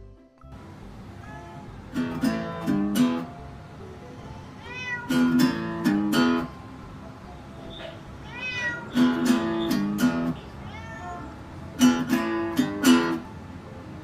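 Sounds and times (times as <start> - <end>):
acoustic guitar strummed: 0.5 - 3.4, 4.8 - 6.6, 7.6 - 10.5, 11.7 - 13.3
cat meowing: 1.1 - 3.2, 4.1 - 6.5, 7.6 - 12.3.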